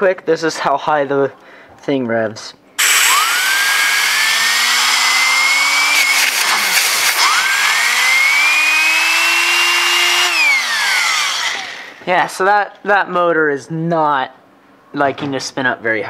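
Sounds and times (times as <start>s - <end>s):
air turbine whining: 2.8s - 12.1s
compressed air hissing: 5.7s - 7.6s.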